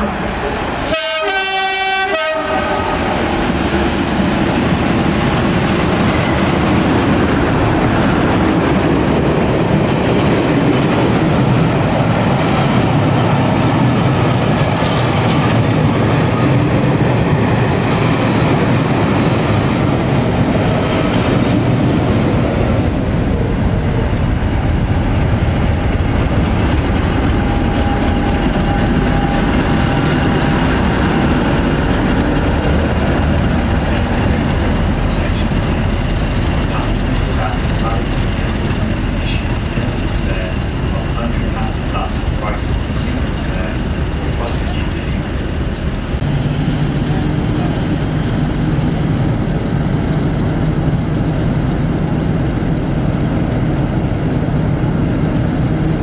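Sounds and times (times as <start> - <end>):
two-tone locomotive horn: 0.0 - 3.1
train passing rumble: 0.0 - 56.0.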